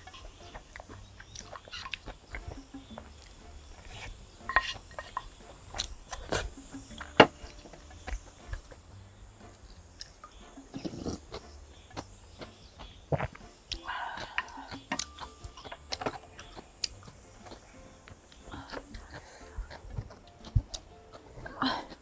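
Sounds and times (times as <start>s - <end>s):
chewing: 0.0s - 22.0s
slurping: 0.0s - 22.0s
spoon scraping ceramic bowl: 3.8s - 5.4s.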